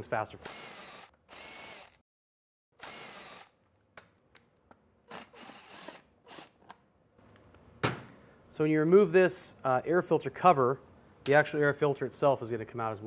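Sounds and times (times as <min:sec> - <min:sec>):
cordless drill whirring: 0:00.4 - 0:02.0, 0:02.8 - 0:03.6, 0:05.1 - 0:06.6.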